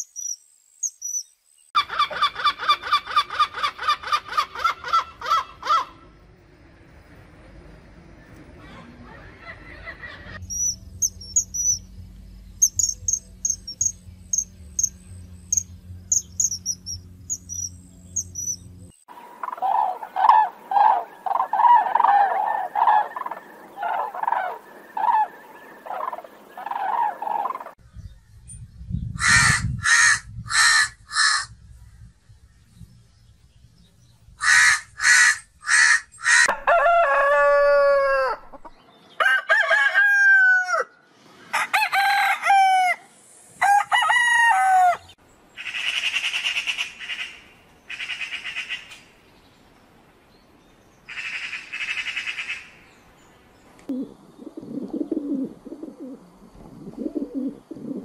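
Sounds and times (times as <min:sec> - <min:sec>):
birds chirping: 0:00.0 - 0:36.5
crow cawing: 0:29.2 - 0:31.5, 0:34.4 - 0:36.6.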